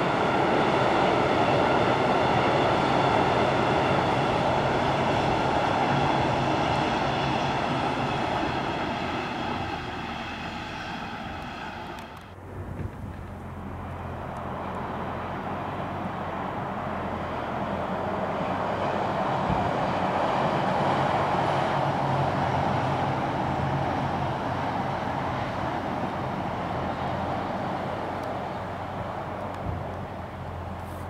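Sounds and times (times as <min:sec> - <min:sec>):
train rolling across viaduct: 0:00.0 - 0:31.0.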